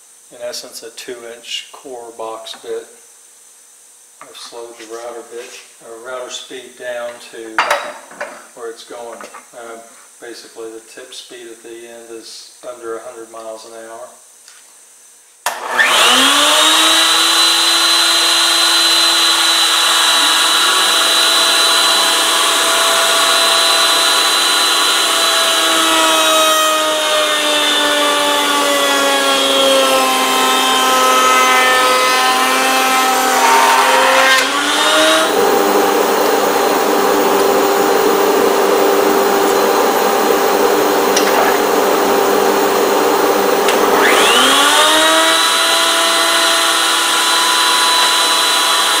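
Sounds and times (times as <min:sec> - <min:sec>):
router motor whining: 0:15.5 - 0:49.0.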